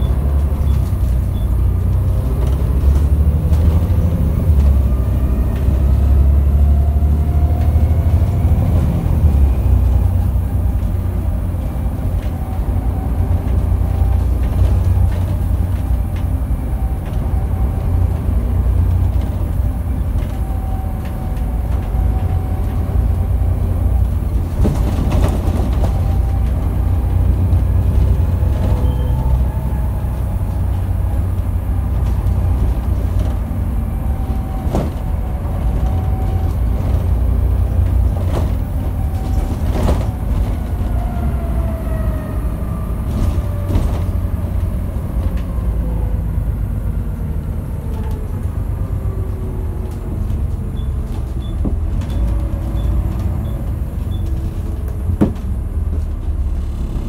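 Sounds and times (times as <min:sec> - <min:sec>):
bus engine rumble: 0:00.0 - 0:57.0
drivetrain whine: 0:00.0 - 0:57.0
body knocks and rattles: 0:24.4 - 0:26.6.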